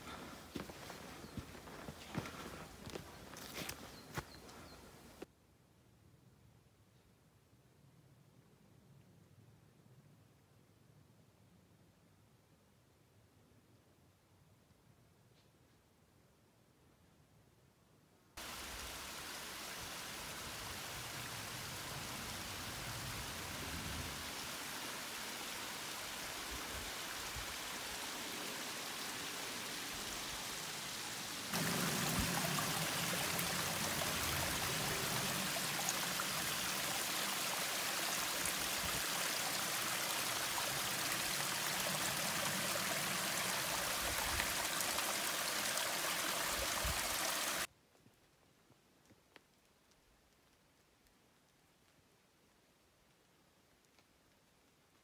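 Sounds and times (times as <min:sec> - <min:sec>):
water running over rocks: 0:18.4 - 0:47.7.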